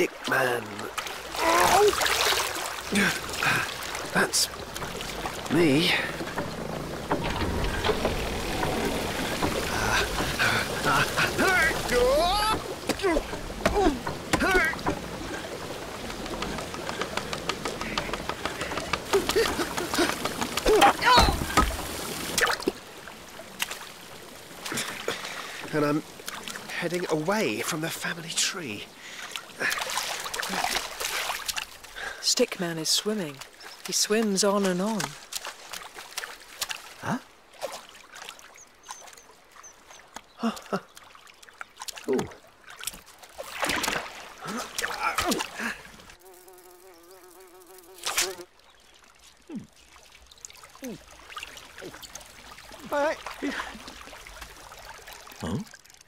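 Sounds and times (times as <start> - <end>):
water splashing onto waterwheel: 0.0 - 56.0.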